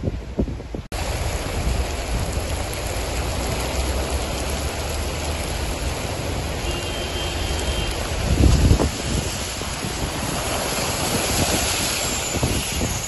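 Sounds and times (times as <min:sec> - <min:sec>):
heavy rain: 0:00.9 - 0:13.0
running water: 0:00.9 - 0:13.0.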